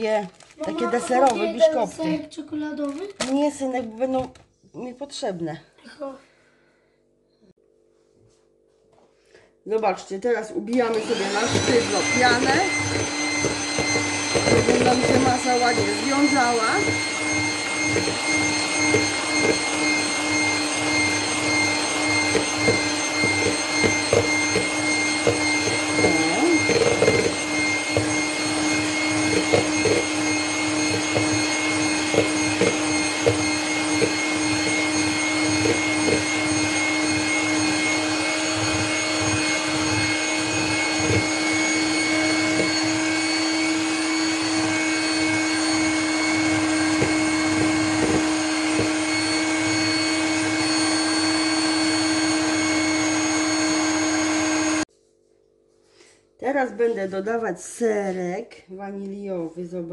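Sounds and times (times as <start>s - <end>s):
electric hand mixer running: 0.0s - 2.4s, 10.3s - 54.9s.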